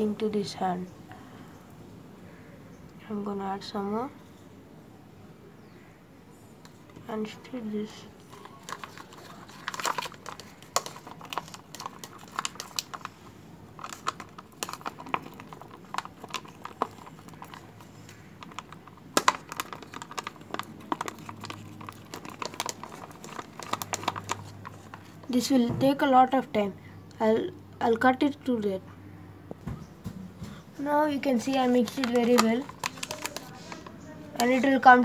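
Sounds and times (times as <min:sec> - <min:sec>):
straw stirring slime in plastic cup: 0:06.7 - 0:26.4, 0:30.8 - 0:35.0.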